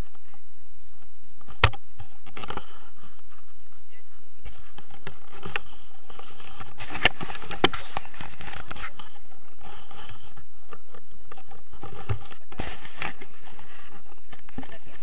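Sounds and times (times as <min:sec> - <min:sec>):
fingers rubbing on camera: 0:04.4 - 0:15.0.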